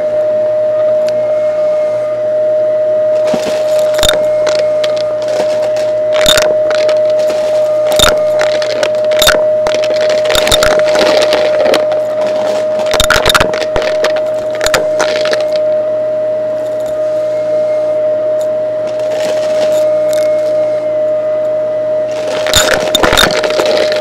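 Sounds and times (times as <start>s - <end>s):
vacuum cleaner whine: 0.0s - 24.0s
coins rattling through nozzle: 18.9s - 19.8s, 22.1s - 24.0s.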